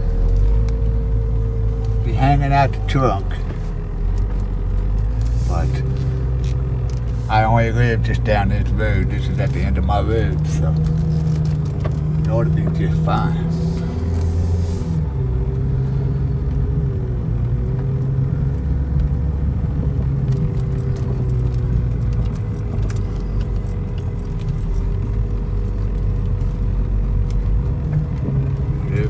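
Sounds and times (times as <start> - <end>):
car engine and road hum: 0.0 - 29.0
faint clicks and rattles: 20.2 - 28.8.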